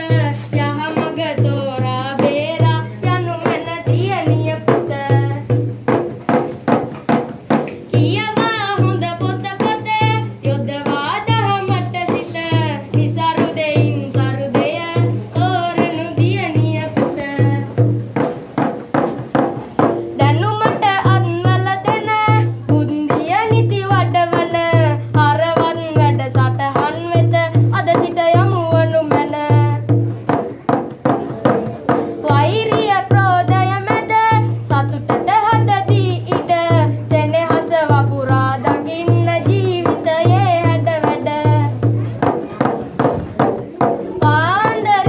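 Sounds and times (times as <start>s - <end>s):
low hand drum beat: 0.0s - 45.0s.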